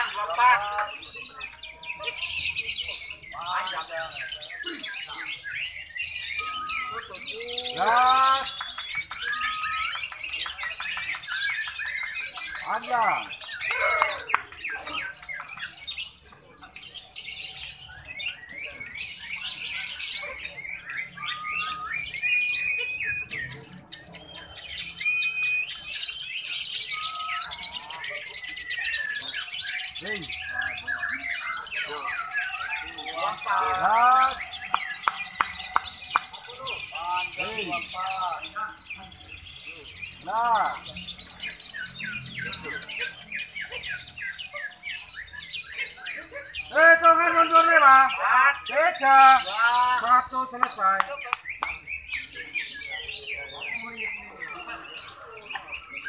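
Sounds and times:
birds chirping: 0:00.0 - 0:56.0
lovebirds twittering: 0:00.0 - 0:56.0
bird whistling: 0:04.6 - 0:07.6, 0:08.6 - 0:12.5, 0:20.8 - 0:23.6, 0:24.8 - 0:27.8, 0:28.6 - 0:38.5.

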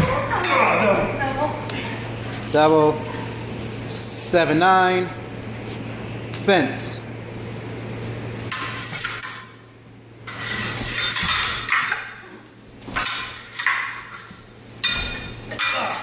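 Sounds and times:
fencing blades clashing: 0:10.5 - 0:12.2, 0:12.9 - 0:16.0.

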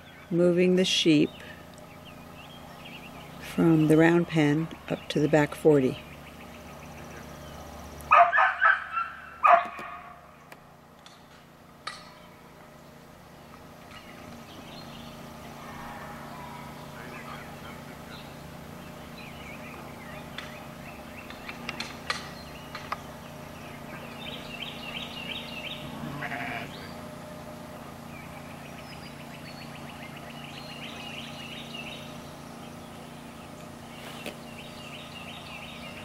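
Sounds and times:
birdsong: 0:00.0 - 0:36.0
sheep bleating: 0:25.8 - 0:26.9.

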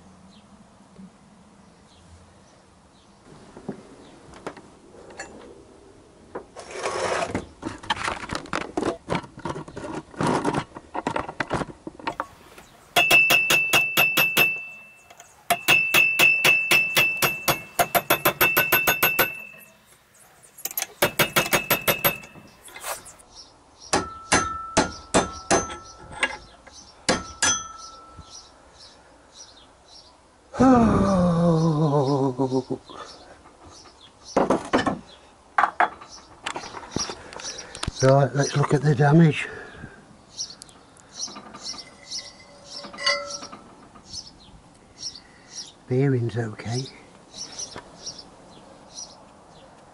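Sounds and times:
scraping and handling knocks: 0:06.6 - 0:23.2
hammer blows on steel: 0:12.9 - 0:19.9, 0:20.6 - 0:23.2.

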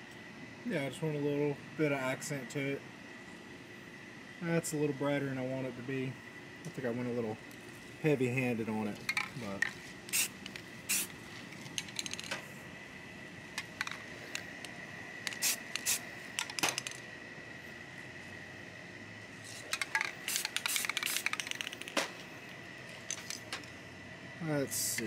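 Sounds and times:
spray can clicks and rattles: 0:09.0 - 0:12.4, 0:15.2 - 0:17.0, 0:19.7 - 0:22.1
spray paint hissing: 0:10.1 - 0:11.1, 0:15.2 - 0:16.0, 0:19.5 - 0:21.8.

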